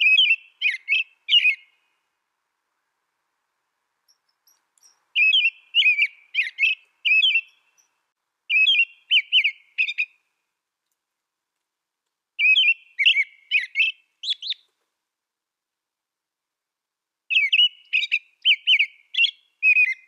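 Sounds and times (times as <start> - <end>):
robin whistled warbling song: 0.0 - 2.0, 4.1 - 10.2, 12.4 - 14.7, 17.3 - 20.0.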